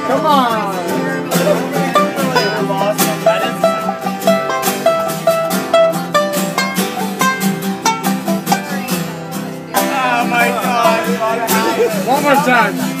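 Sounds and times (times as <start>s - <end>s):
acoustic guitar plucked notes: 0.0s - 13.0s.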